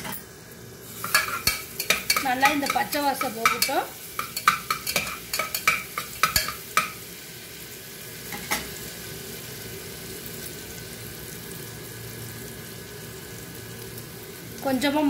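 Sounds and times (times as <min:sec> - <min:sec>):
paste sizzling in oil: 0:00.0 - 0:15.0
spoon scraping and tapping pot: 0:01.0 - 0:07.0.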